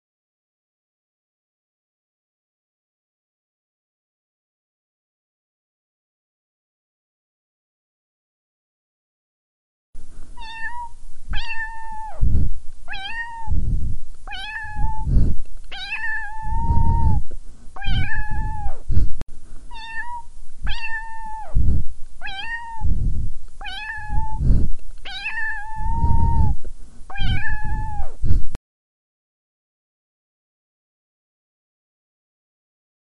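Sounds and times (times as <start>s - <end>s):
cat meowing: 10.4s - 12.2s, 12.9s - 13.6s, 14.3s - 15.1s, 15.7s - 17.2s, 17.8s - 18.8s, 19.7s - 21.6s, 22.2s - 22.9s, 23.6s - 24.4s, 25.1s - 28.2s.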